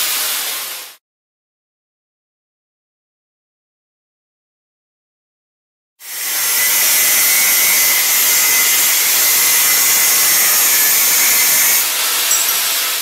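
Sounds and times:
angle grinder cutting tile: 0:06.0 - 0:13.0.

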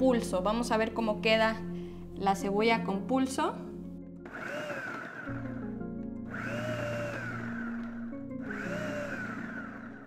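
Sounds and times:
food processor motor pulsing: 0:04.2 - 0:10.0.

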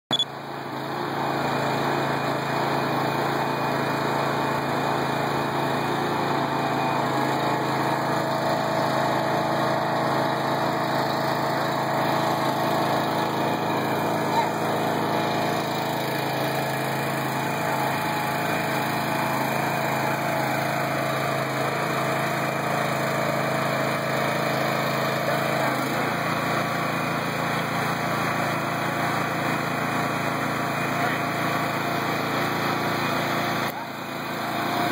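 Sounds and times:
hydraulic power unit engine running: 0:00.1 - 0:34.9.

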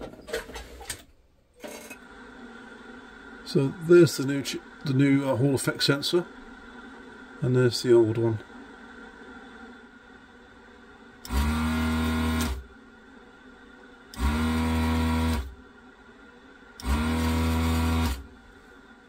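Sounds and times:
suction pump buzzing: 0:11.2 - 0:12.7, 0:14.1 - 0:15.6, 0:16.8 - 0:18.3.

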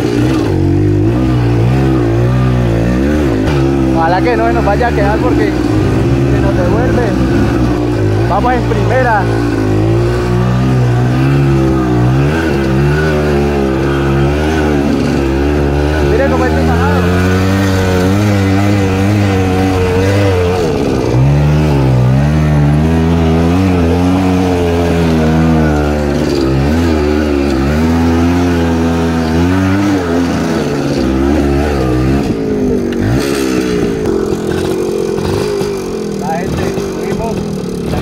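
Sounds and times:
motorcycle engine revving: 0:00.0 - 0:38.0.

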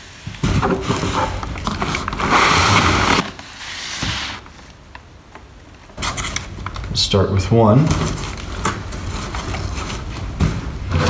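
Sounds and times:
cardboard boxes scraping: 0:00.3 - 0:04.6, 0:08.0 - 0:11.0.

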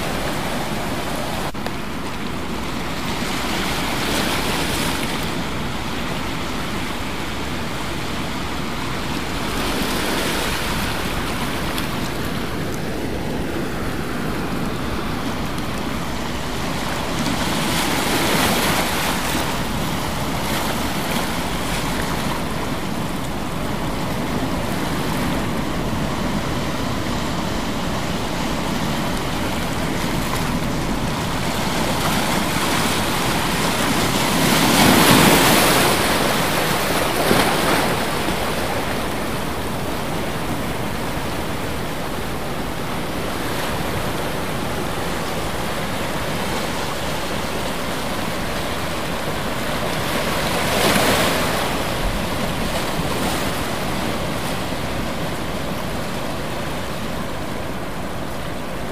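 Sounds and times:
ocean waves breaking: 0:00.0 - 0:58.9.

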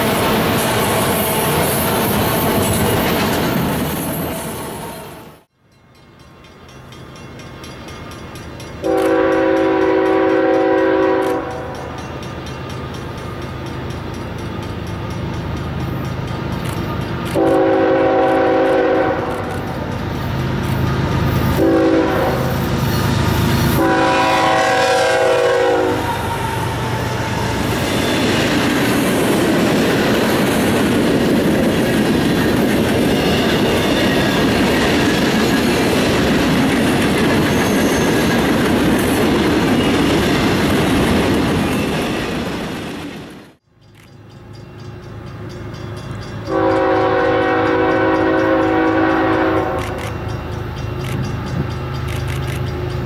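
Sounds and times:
steel wheels clattering on rails: 0:00.0 - 0:04.6, 0:26.8 - 0:42.9
locomotive chime horn blasts: 0:08.7 - 0:12.1, 0:16.9 - 0:20.0, 0:20.8 - 0:27.0, 0:44.1 - 0:52.1.

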